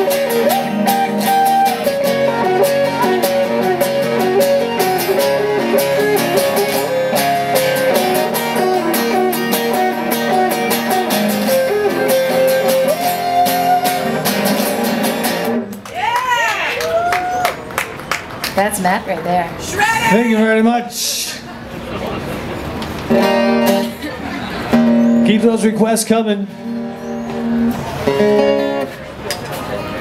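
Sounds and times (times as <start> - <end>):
acoustic guitar strumming chords: 0.0 - 15.7, 23.1 - 24.0, 24.7 - 29.0
acoustic guitar lead solo: 0.0 - 15.8, 23.1 - 29.0.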